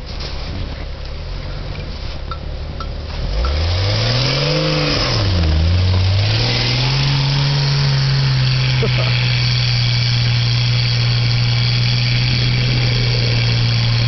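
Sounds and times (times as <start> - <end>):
tyres churning snow: 0.0 - 14.0
engine revving: 3.0 - 14.0.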